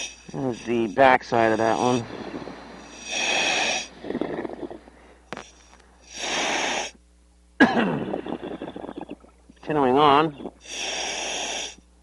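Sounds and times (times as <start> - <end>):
regulator exhaust bubbling: 0.3 - 5.2, 7.7 - 10.6
hissing breath in: 1.6 - 7.0, 10.6 - 11.8.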